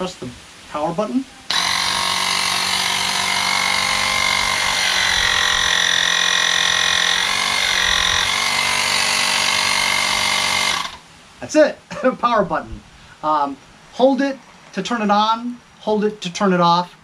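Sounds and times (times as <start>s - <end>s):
air compressor motor whine: 1.5s - 11.0s.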